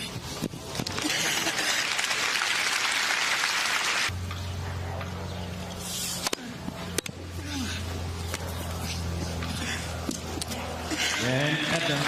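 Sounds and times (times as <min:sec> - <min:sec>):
crowd applauding: 0:01.3 - 0:04.1
steady low hum: 0:04.1 - 0:12.0.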